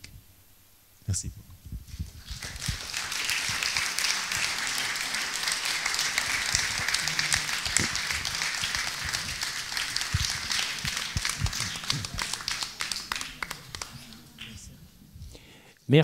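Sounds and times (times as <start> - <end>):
audience applauding: 2.1 - 14.7.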